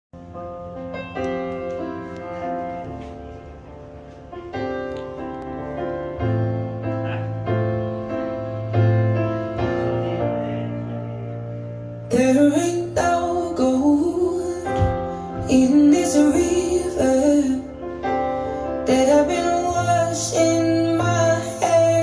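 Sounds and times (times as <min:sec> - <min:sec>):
piano chords over loudspeakers: 0:00.2 - 0:22.0.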